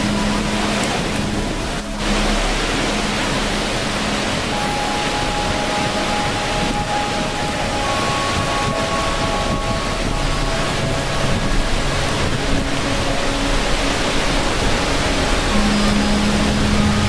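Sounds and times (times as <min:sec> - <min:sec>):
faint long held tones: 0:00.0 - 0:17.0
water rushing over rock: 0:00.0 - 0:17.0.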